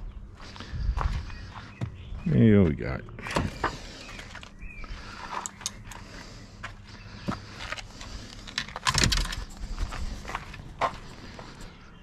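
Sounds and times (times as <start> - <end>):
rustling of gear: 4.0 - 11.8.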